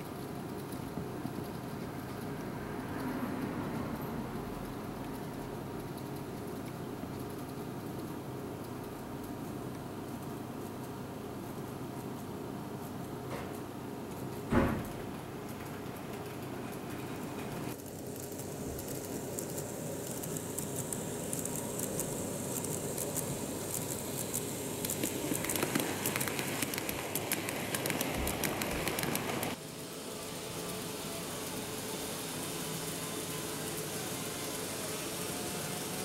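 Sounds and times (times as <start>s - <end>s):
model train running on track: 15.6s - 36.0s.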